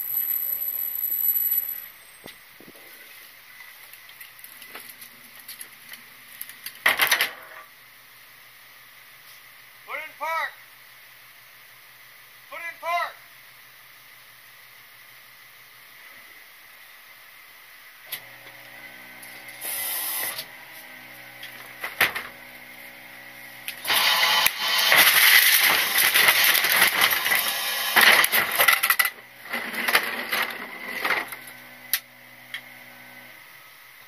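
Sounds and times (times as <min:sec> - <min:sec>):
mechanical hum: 0:00.0 - 0:09.8, 0:13.2 - 0:34.0
trash crunching and rattling: 0:28.0 - 0:31.4.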